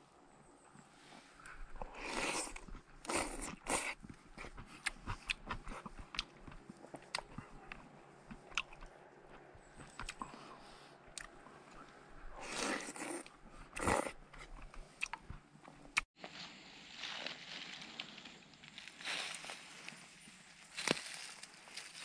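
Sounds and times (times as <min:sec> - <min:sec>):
person chewing: 0:01.5 - 0:16.1.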